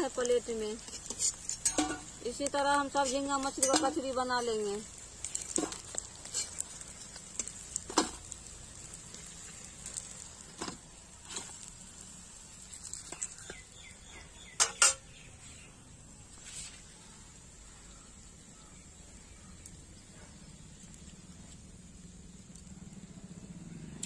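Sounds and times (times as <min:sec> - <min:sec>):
metal spatula scraping metal pan: 0:00.8 - 0:02.3, 0:03.0 - 0:04.7, 0:05.4 - 0:08.2.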